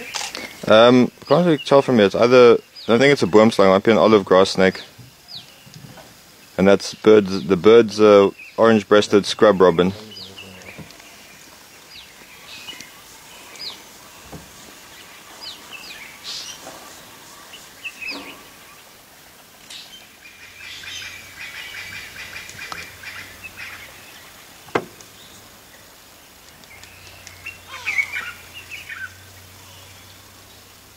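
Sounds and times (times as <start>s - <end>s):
birds whistled chirps: 19.7s - 24.4s, 26.6s - 30.2s
bird trilling: 27.3s - 29.9s.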